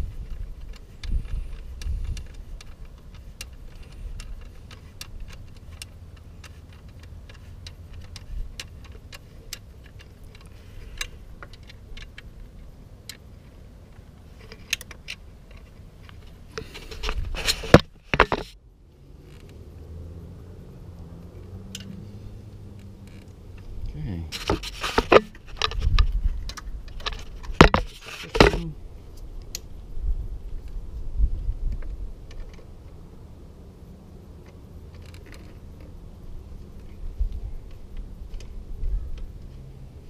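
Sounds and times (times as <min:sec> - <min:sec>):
hand tools clicking on bolts: 0:00.2 - 0:12.3
metal handling clatter: 0:23.5 - 0:28.7.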